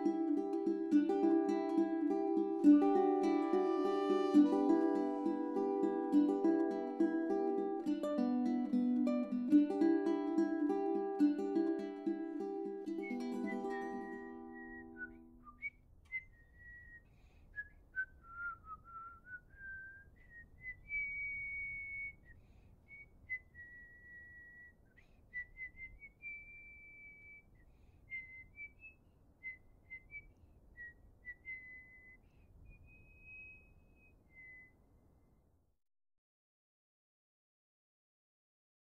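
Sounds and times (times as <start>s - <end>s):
person whistling a tune: 0.1s - 8.3s, 11.5s - 17.0s, 17.6s - 34.7s.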